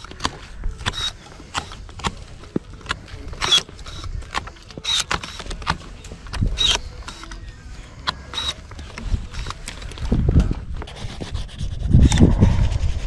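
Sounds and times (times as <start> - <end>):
electric secateurs snipping: 0.0 - 10.4.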